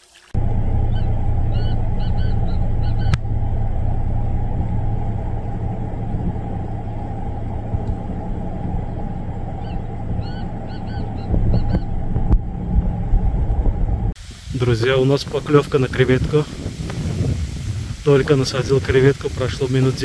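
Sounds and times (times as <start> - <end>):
low rumble: 0.4 - 20.0
gamebird calling: 0.9 - 3.3, 9.5 - 12.1.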